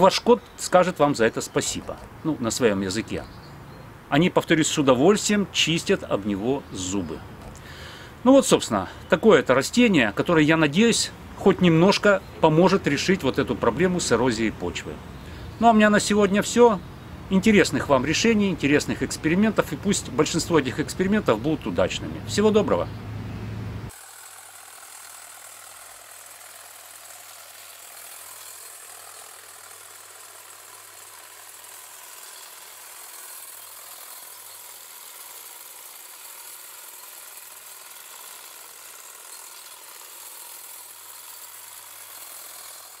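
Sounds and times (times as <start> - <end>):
electric hedge trimmer cutting grass: 17.3 - 22.8, 23.5 - 43.0.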